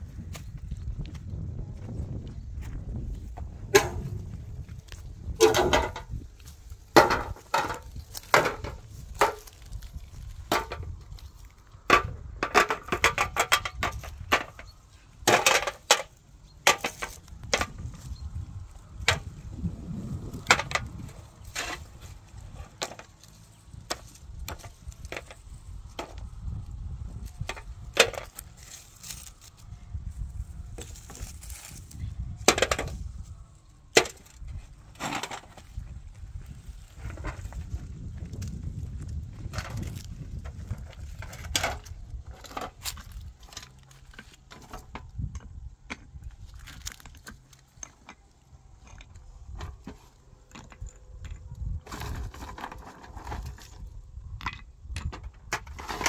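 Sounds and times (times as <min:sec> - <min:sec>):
wooden knocks and chops: 0:03.7 - 0:04.2, 0:07.0 - 0:09.7.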